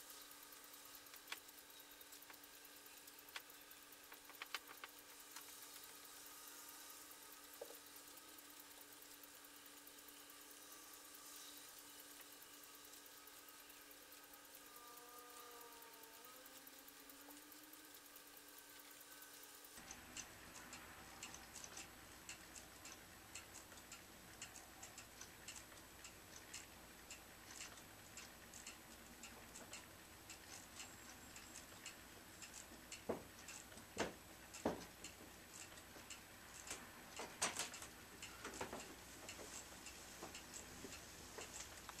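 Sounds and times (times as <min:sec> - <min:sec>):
faint clock ticking: 0:00.0 - 0:42.0.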